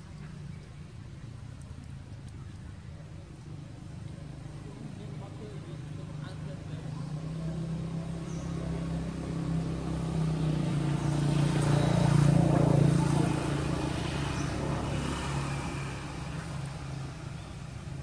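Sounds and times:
vehicle engine driving past: 0:04.5 - 0:18.0.

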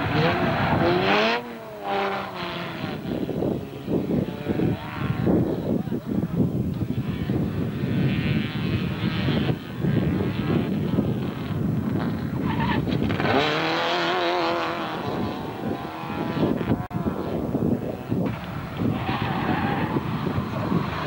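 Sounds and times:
race car engines revving: 0:00.0 - 0:21.0
tyre squeal: 0:12.4 - 0:13.5.

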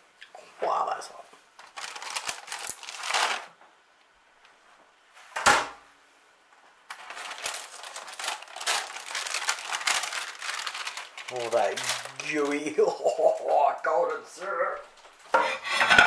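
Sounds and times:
baking paper crinkling: 0:01.6 - 0:03.6, 0:06.8 - 0:13.5.

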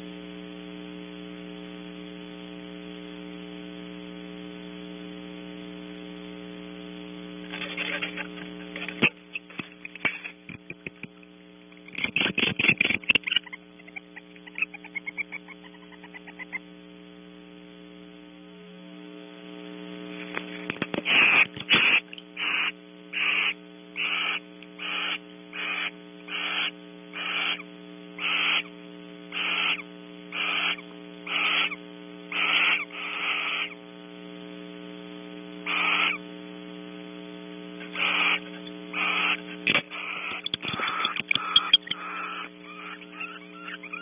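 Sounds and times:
electrical hum: 0:00.0 - 0:44.0
owl hissing calls: 0:13.2 - 0:16.6, 0:21.1 - 0:28.7, 0:29.3 - 0:33.8, 0:35.6 - 0:36.2, 0:37.9 - 0:44.0.

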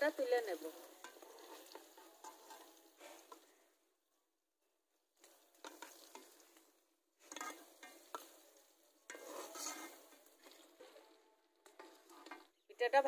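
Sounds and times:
hot oil sizzling: 0:00.0 - 0:03.8, 0:05.1 - 0:13.0.

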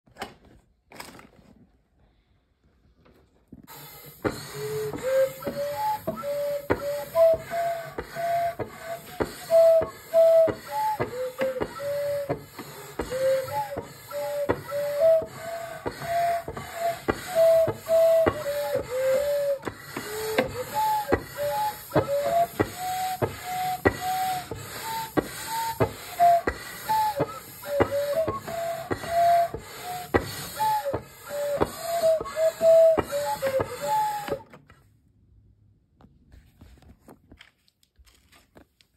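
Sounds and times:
pipe organ flute-like notes: 0:03.7 - 0:34.5.

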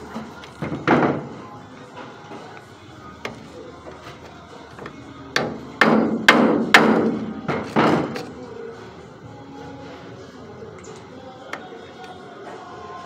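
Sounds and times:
hammer striking metal: 0:05.4 - 0:08.2.

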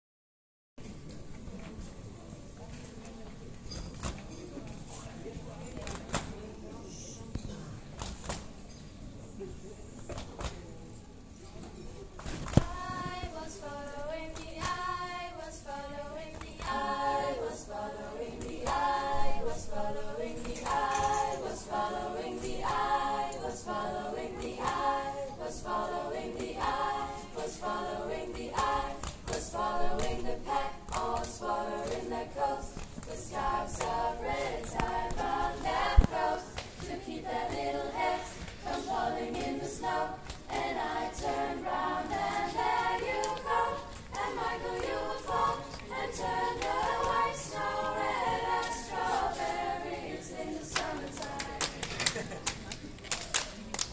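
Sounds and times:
hand slaps and claps: 0:08.0 - 0:08.5, 0:10.1 - 0:10.6, 0:12.2 - 0:12.8, 0:14.4 - 0:14.8, 0:16.3 - 0:16.8, 0:28.6 - 0:29.4, 0:50.7 - 0:53.9
female choir singing a cappella: 0:12.3 - 0:52.3.

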